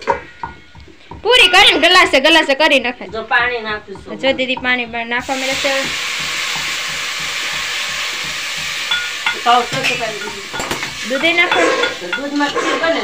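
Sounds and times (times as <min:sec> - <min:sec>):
water hissing in hot pot: 0:05.1 - 0:13.0.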